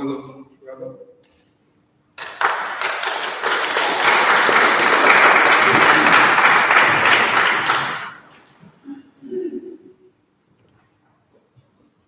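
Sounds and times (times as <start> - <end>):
crowd applauding: 2.2 - 8.5.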